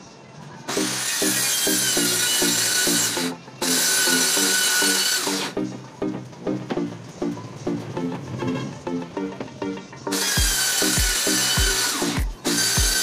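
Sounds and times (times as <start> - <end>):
circular saw cutting plywood: 0.7 - 5.6, 10.1 - 13.0.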